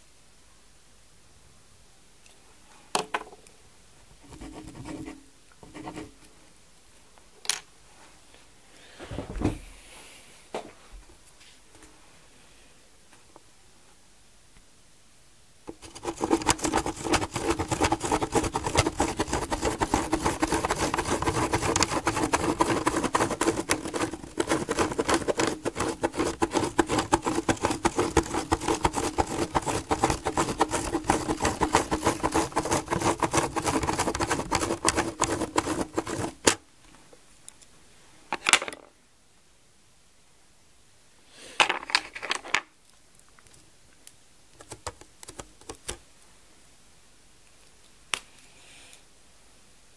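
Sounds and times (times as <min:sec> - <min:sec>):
pen scratching on paper: 0:04.3 - 0:06.1, 0:15.7 - 0:36.6.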